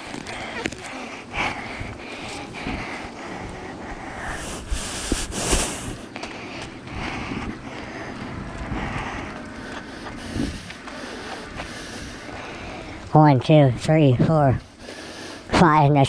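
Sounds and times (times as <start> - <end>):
microphone rustle and hiss: 4.2 - 6.1
footsteps on gravel: 4.4 - 6.8.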